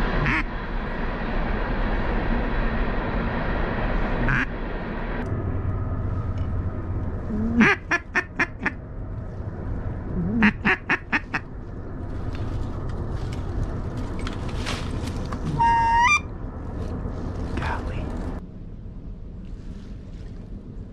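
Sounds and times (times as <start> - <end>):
duck quacking: 0.2 - 0.5, 4.2 - 4.5, 7.3 - 8.8, 10.2 - 11.5, 15.4 - 16.2
short whistle: 15.5 - 16.2.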